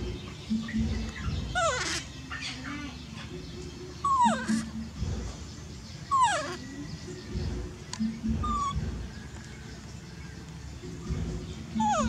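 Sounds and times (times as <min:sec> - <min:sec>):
baby monkey whimpering: 0:00.5 - 0:02.9, 0:04.0 - 0:05.3, 0:06.1 - 0:09.2, 0:11.7 - 0:12.0.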